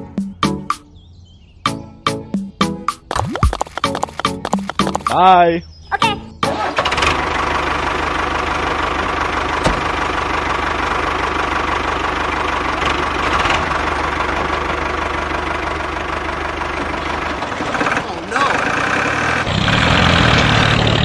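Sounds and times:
tractor engine chugging: 6.4s - 21.0s.

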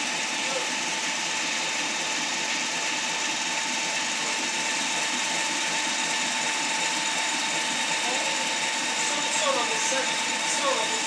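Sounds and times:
diesel locomotive idling: 0.0s - 11.0s.

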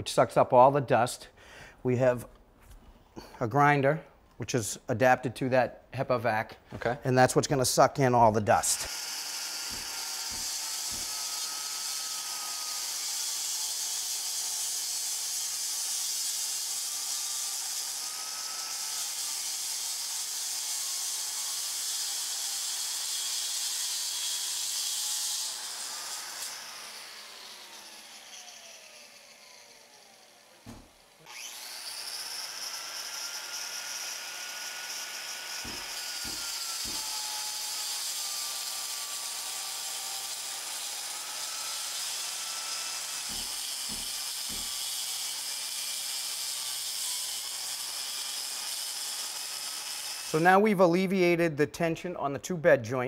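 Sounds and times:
masonry grinder whining: 8.3s - 50.6s.

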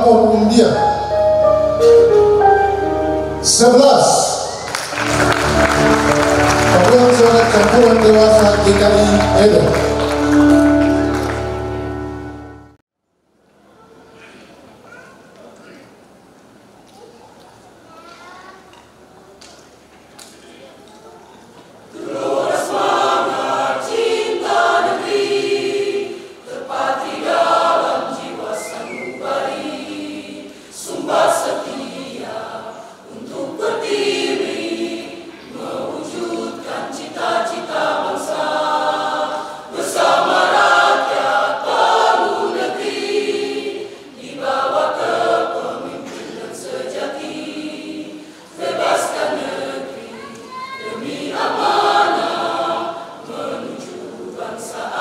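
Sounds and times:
mixed choir singing a cappella: 21.8s - 55.0s.

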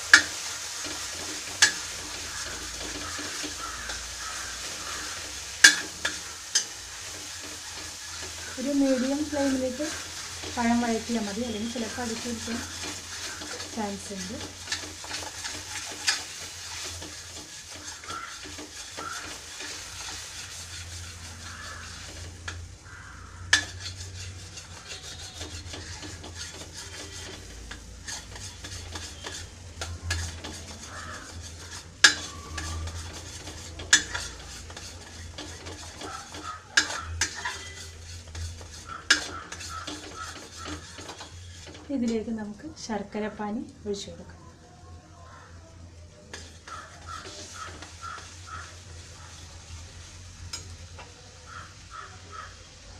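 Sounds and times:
spoon stirring and scraping paste: 0.0s - 22.6s, 23.2s - 41.9s, 46.3s - 48.8s
light sizzle: 0.0s - 52.9s
spoon knocking against pan: 38.8s - 41.3s.

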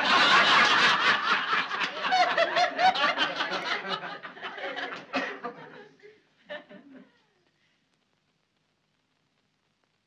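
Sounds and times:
group of people laughing: 0.0s - 7.1s.

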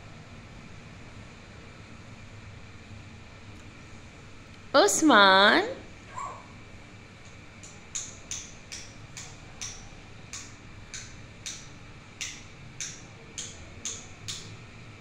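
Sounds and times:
parrot clicking: 7.6s - 14.5s.

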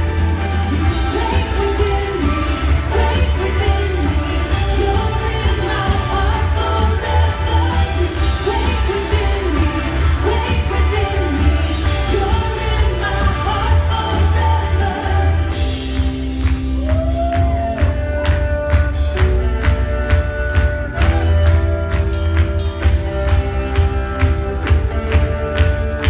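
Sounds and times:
drum kit beat: 0.0s - 26.0s
electric guitars: 0.0s - 26.0s
voices singing: 0.8s - 15.8s.

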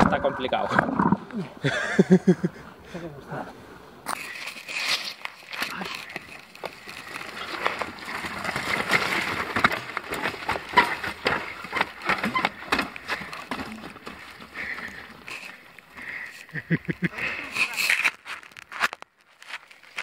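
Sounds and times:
bike tyres clattering on stones: 4.0s - 20.0s
bike rattling: 4.1s - 20.0s.

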